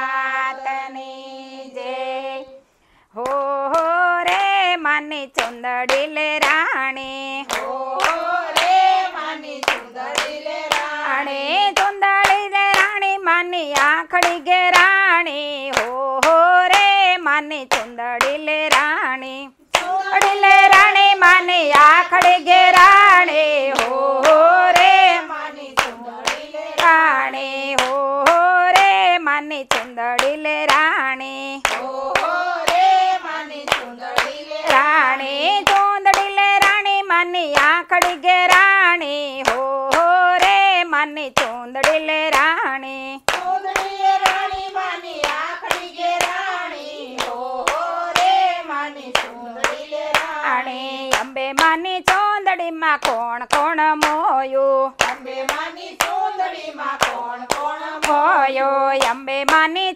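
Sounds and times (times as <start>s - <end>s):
women singing together: 0.0s - 59.9s
hand claps: 3.2s - 19.1s, 19.7s - 54.4s, 55.0s - 59.9s.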